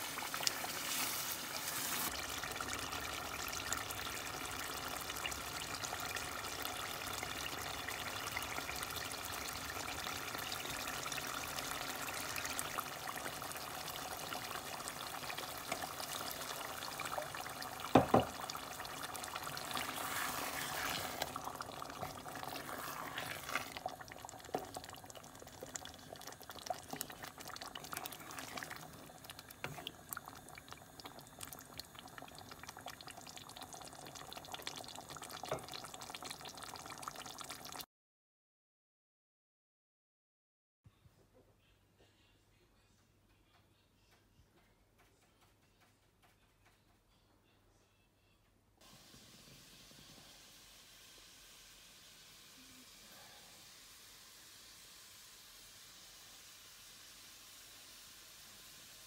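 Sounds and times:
curry bubbling and sizzling: 0.0s - 37.8s.

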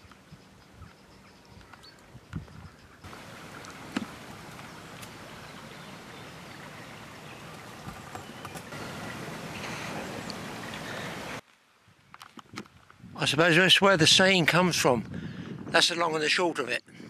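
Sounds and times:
steady outdoor background hiss: 0.0s - 15.0s.

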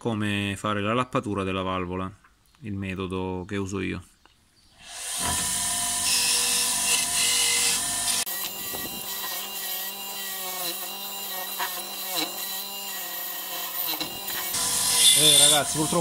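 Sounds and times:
bench grinder motor hum: 5.0s - 16.0s.

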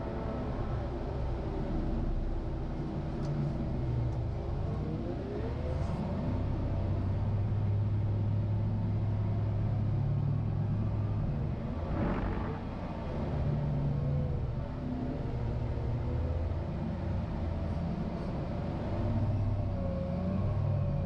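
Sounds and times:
diesel engine running: 0.0s - 21.0s.

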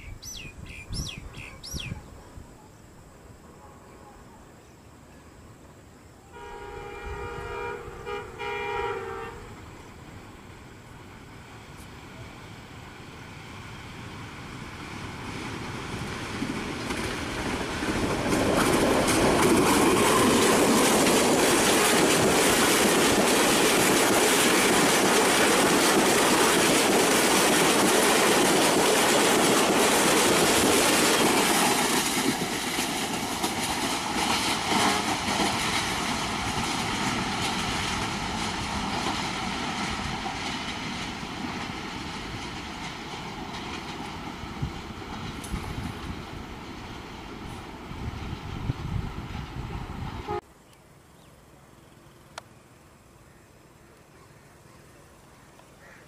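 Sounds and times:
train passing at speed: 0.0s - 50.6s
wheels clacking over rail joints: 14.2s - 47.9s.

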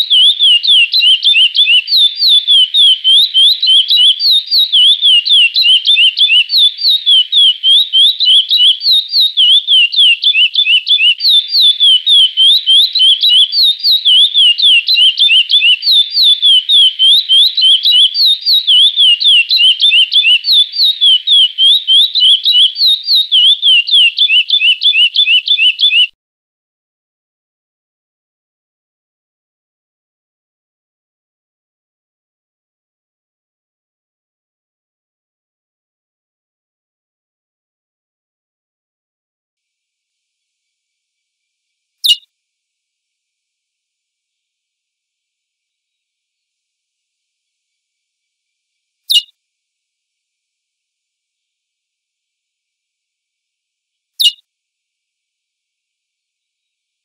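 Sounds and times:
finch singing whistled notes: 0.0s - 26.1s, 42.0s - 42.2s, 49.1s - 49.3s, 54.2s - 54.4s
faint steady hiss: 39.6s - 57.0s.

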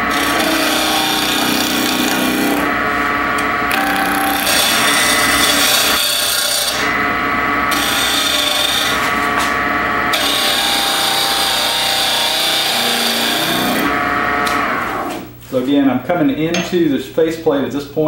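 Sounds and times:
wood lathe hum: 0.0s - 15.3s.

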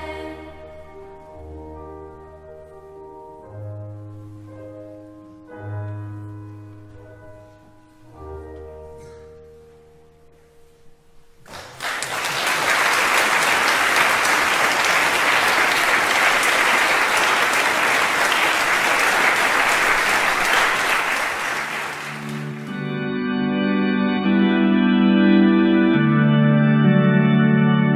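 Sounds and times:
audience applauding: 11.4s - 22.9s
held chord of song: 12.1s - 27.9s
music with long held chords: 21.2s - 27.9s.

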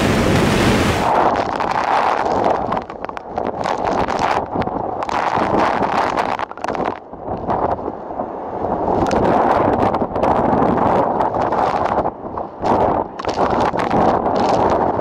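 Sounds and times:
wind gusting through rigging: 0.0s - 15.0s.

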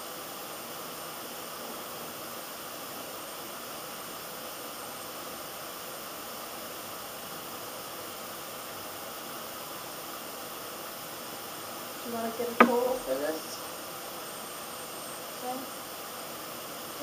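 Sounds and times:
room noise hiss: 0.0s - 17.0s.

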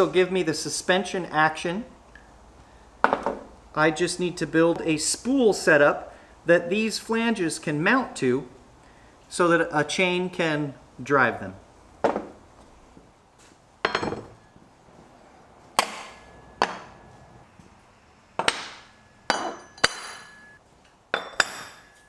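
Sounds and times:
heavy metal parts clanking on steel: 18.4s - 20.6s.

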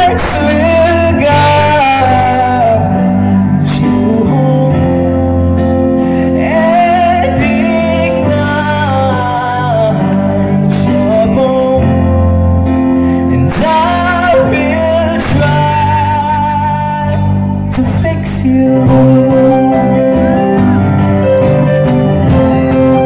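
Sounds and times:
man singing: 0.0s - 21.6s
rock band playing: 0.0s - 23.0s.

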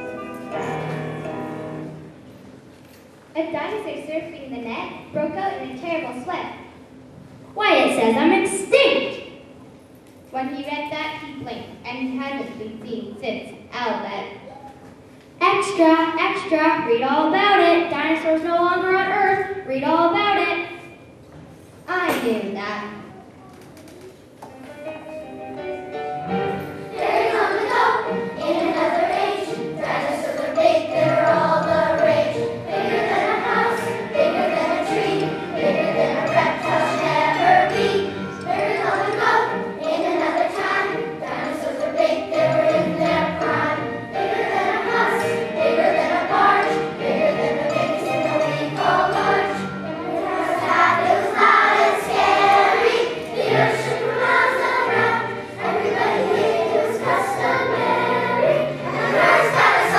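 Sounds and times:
children's choir singing: 0.0s - 2.2s, 26.2s - 59.9s.

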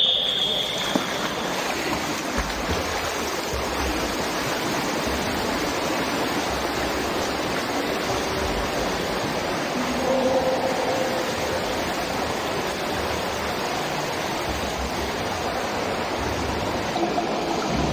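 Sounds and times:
swimmer splashing water: 0.0s - 17.9s.

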